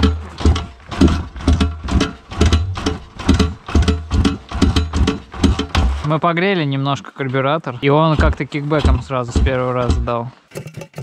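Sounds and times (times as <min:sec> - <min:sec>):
background music with steady beat: 0:00.0 - 0:06.2.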